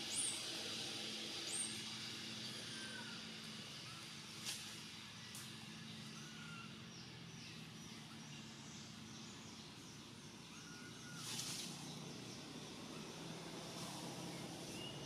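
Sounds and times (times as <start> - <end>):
birds chirping: 0.0 - 15.0.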